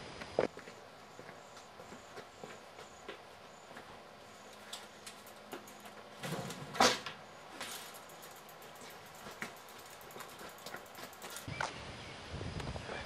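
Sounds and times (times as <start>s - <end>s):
bicycle clunking down: 4.4s - 11.5s
bicycle frame clicks and rattles: 4.5s - 11.5s.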